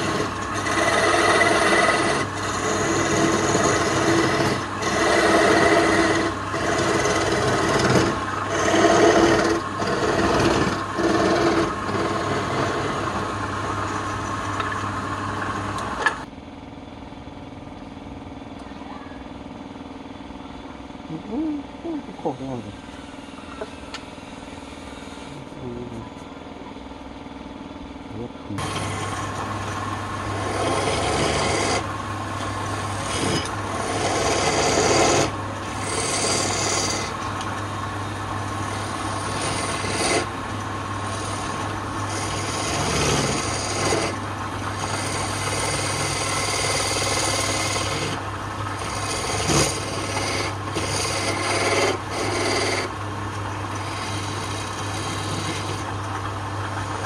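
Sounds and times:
chisel scraping on wood lathe: 0:00.0 - 0:16.3, 0:28.6 - 0:53.0, 0:53.7 - 0:56.0
lathe motor hum: 0:00.0 - 0:16.3, 0:28.5 - 0:57.0.

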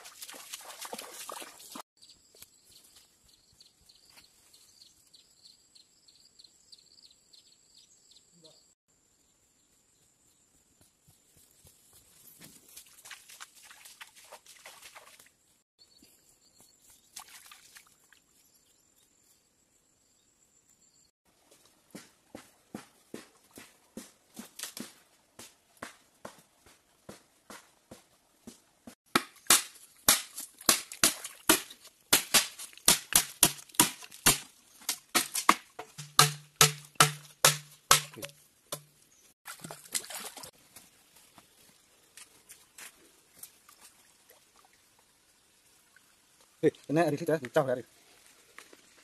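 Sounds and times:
footsteps on dry leaves and twigs: 0:10.2 - 0:15.2, 0:40.0 - 0:43.9.

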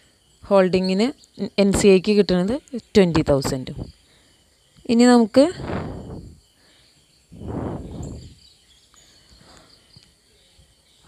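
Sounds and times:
insects chirring: 0:00.0 - 0:11.0
soft rush of noise: 0:05.4 - 0:06.6, 0:07.3 - 0:08.4.

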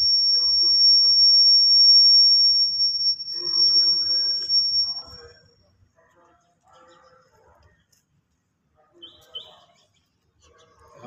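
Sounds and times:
microphone feedback squeal: 0:00.0 - 0:05.6.

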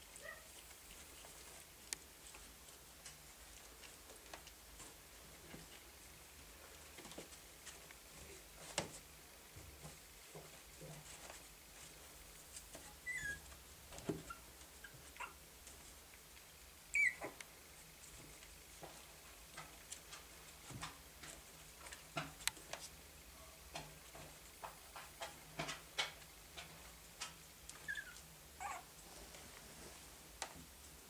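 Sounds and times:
soft clicks and scratches: 0:00.1 - 0:09.1, 0:17.3 - 0:31.0
puppies squeaking: 0:13.0 - 0:13.5, 0:14.2 - 0:15.4, 0:16.9 - 0:17.4, 0:27.8 - 0:28.9.

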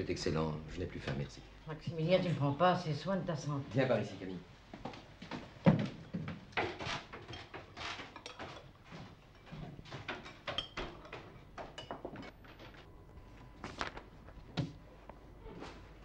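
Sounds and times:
cutlery and crockery clinking: 0:06.1 - 0:12.4.

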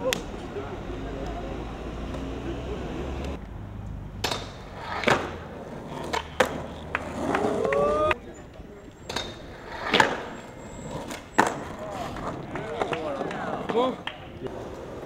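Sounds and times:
skateboard clacking: 0:04.2 - 0:08.2, 0:08.9 - 0:15.0
skateboard wheels rolling: 0:04.2 - 0:15.0.

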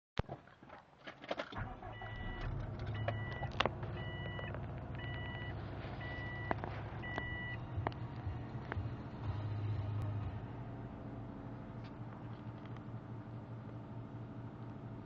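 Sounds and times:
car engine idling: 0:01.6 - 0:15.0
dashboard warning chime beeps: 0:01.9 - 0:07.6.

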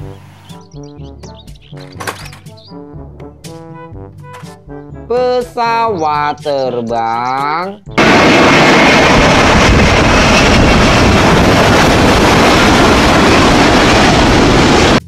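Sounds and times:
jet engines roaring: 0:06.2 - 0:15.0
wind rumble on microphone: 0:08.0 - 0:15.0.

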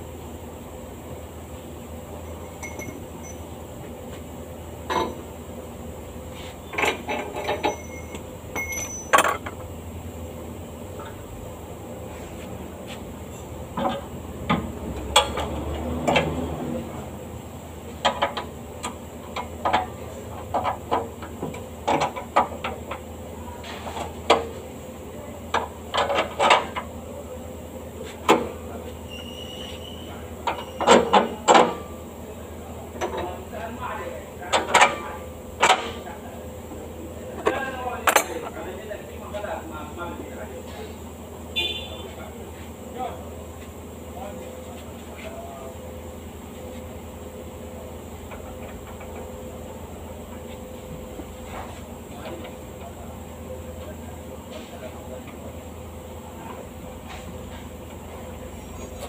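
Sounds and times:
metal tools clanking: 0:02.3 - 0:03.5, 0:06.7 - 0:09.6.

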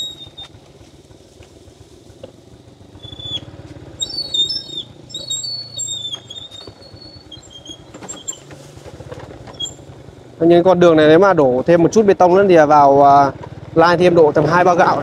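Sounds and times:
high-pitched squeaks: 0:00.0 - 0:00.5, 0:03.0 - 0:08.6, 0:09.5 - 0:09.9
small motorcycle engine running: 0:00.0 - 0:15.0.

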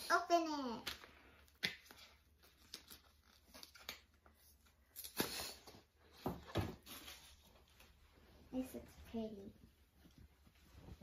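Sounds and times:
wrapping being torn and crinkled: 0:00.8 - 0:05.6.

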